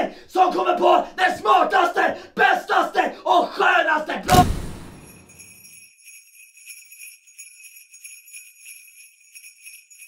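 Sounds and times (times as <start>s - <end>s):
jingle bells shaking: 4.9s - 10.0s.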